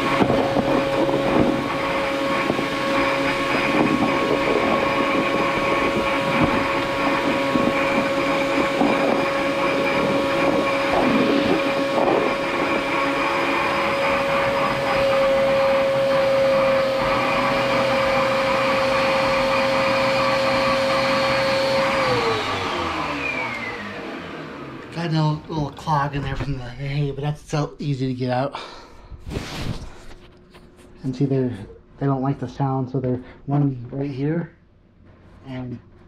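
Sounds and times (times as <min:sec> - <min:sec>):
vacuum cleaner whining: 0:00.0 - 0:27.7.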